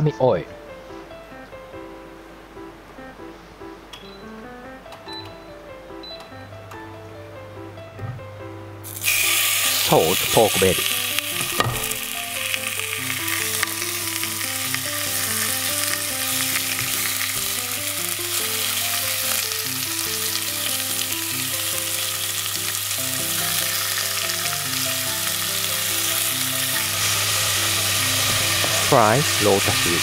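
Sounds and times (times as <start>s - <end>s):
pork sizzling in oil: 8.8s - 30.0s
chopsticks turning meat: 8.9s - 30.0s.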